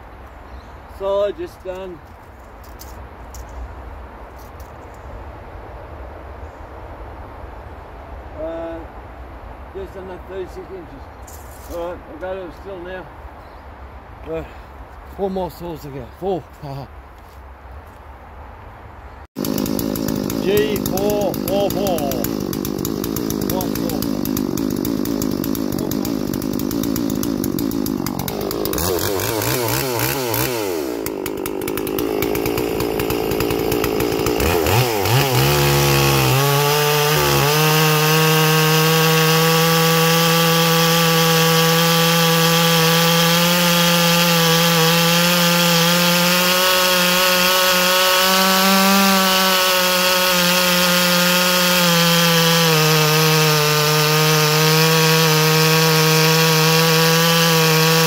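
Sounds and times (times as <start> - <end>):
chainsaw cutting log: 19.4 - 58.0
chainsaw revving: 19.4 - 58.0.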